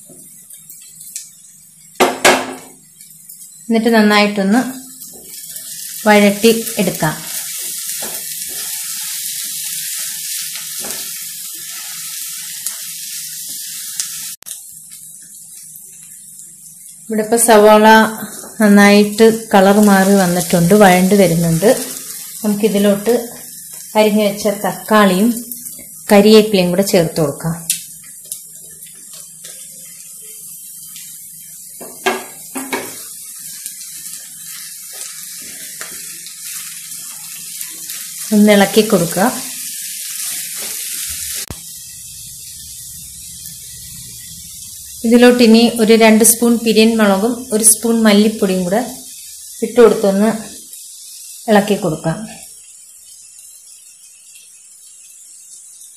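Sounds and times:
onions sizzling in hot oil: 0.0s - 55.9s
utensil knocking on pan: 2.0s - 2.8s, 31.8s - 33.0s
spatula stirring: 7.5s - 9.0s.

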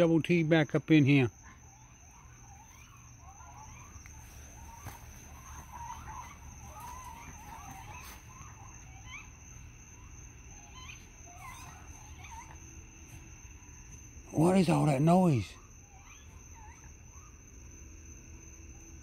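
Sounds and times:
animals chittering and trilling: 0.0s - 19.0s
quick upward squeals: 1.4s - 13.2s.

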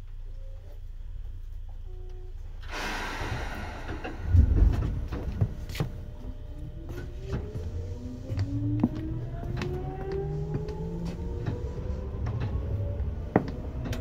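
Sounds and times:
air hiss: 2.6s - 5.4s
train motor whine rising: 2.7s - 14.0s
heavy thuds: 3.4s - 6.3s.

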